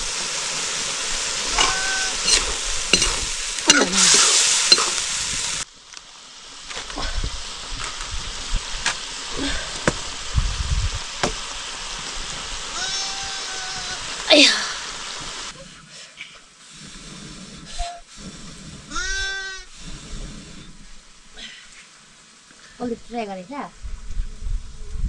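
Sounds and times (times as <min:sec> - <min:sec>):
curry sizzling in a wok: 0:00.0 - 0:15.6
handling knocks: 0:11.2 - 0:11.5.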